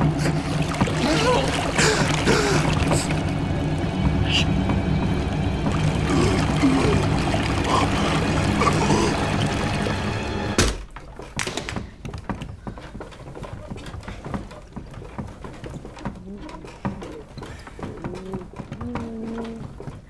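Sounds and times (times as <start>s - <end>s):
water gushing from a hose: 0.0s - 3.3s, 5.1s - 10.6s
dramatic music: 0.0s - 10.8s
faint knocks and ticks: 10.8s - 20.0s.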